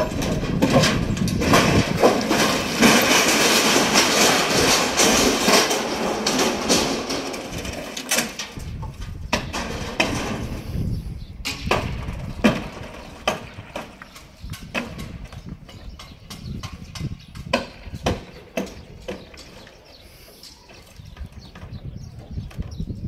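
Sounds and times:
wooden formwork being hammered: 0.0 - 8.5, 11.4 - 19.7.

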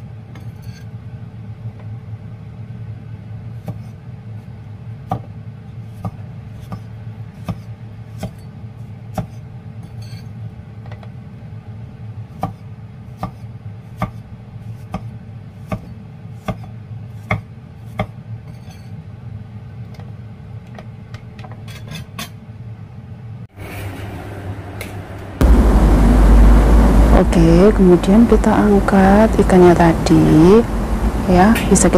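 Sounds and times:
steady low hum: 23.6 - 31.9.

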